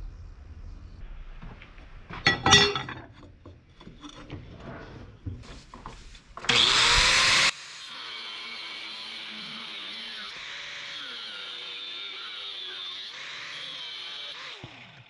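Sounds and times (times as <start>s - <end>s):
wood clattering in metal vise: 2.1s - 6.6s
angle grinder whine: 6.4s - 15.0s.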